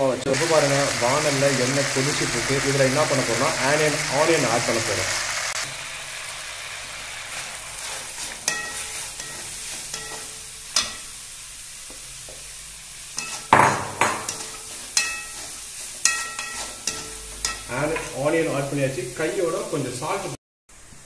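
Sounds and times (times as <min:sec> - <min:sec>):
onions sizzling in hot oil: 0:00.0 - 0:21.0
steel spatula scraping a pan: 0:07.1 - 0:11.2, 0:13.1 - 0:13.6, 0:14.2 - 0:18.2.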